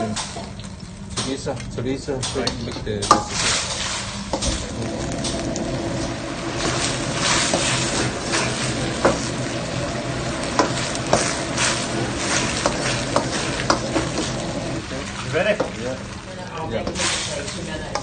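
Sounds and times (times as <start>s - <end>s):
food sizzling in a wok: 3.1s - 18.0s
metal ladle scraping wok: 6.0s - 15.3s.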